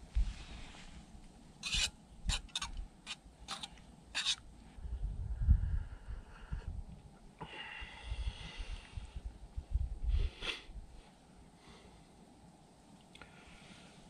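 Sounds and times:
spoon stirring in metal pot: 0:01.6 - 0:04.4.

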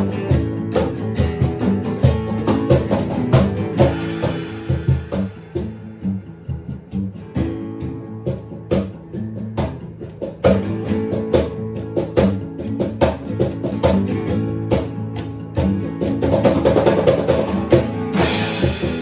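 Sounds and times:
cajon beating time: 0:00.0 - 0:19.0
guitars strumming chords: 0:00.0 - 0:19.0.

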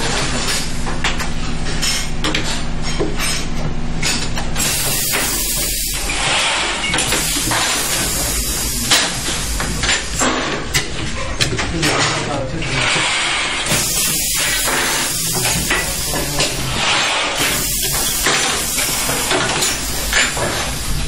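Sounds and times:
machine hum: 0:03.6 - 0:21.0
bursts of hissing: 0:04.6 - 0:10.2, 0:13.0 - 0:21.0.

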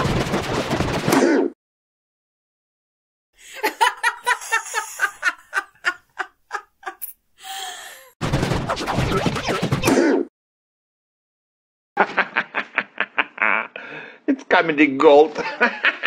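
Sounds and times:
person laughing: 0:03.4 - 0:07.9, 0:12.0 - 0:14.0.

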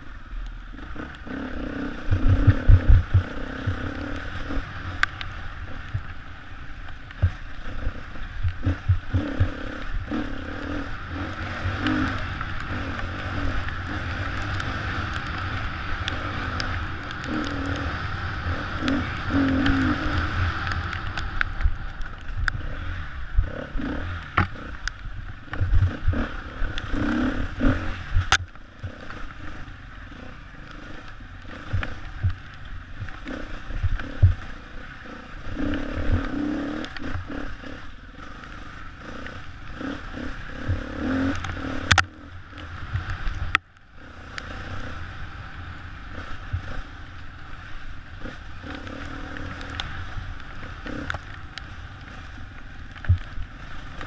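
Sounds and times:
wind on microphone: 0:00.0 - 0:06.5, 0:07.1 - 0:37.8
dirt bike engine revving: 0:00.7 - 0:05.9, 0:07.2 - 0:21.3, 0:22.6 - 0:32.4, 0:33.0 - 0:43.3, 0:44.0 - 0:47.0, 0:47.6 - 0:51.1.

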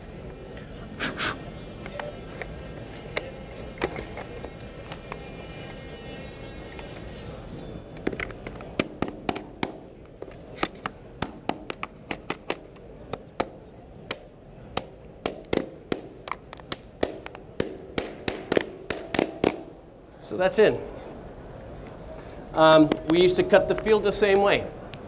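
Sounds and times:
hammer striking nails into wood: 0:16.7 - 0:19.7.

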